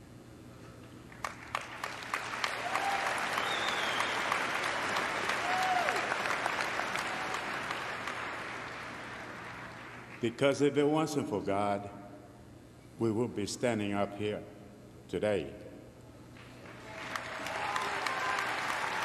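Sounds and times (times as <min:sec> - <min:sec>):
audience applause: 0:01.2 - 0:10.2, 0:16.6 - 0:19.0.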